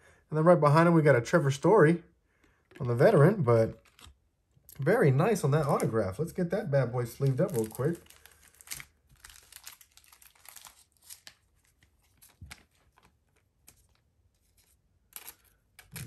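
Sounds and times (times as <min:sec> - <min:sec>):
plastic sleeve rustling: 0:02.6 - 0:04.2, 0:07.0 - 0:16.0.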